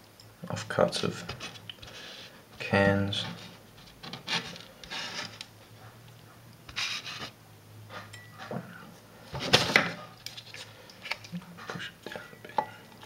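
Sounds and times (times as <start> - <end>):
person breathing: 1.8 - 2.4.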